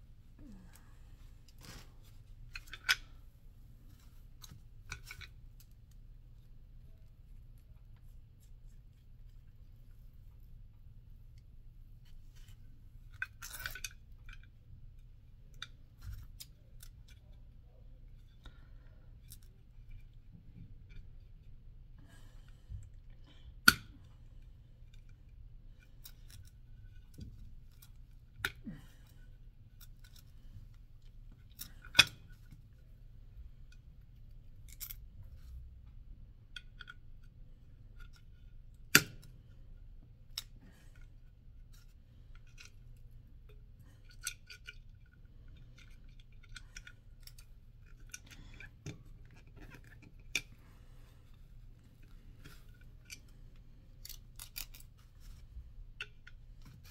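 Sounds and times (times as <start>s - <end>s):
faint low hum: 0.0s - 56.9s
plastic and metal parts clicking: 54.0s - 56.9s.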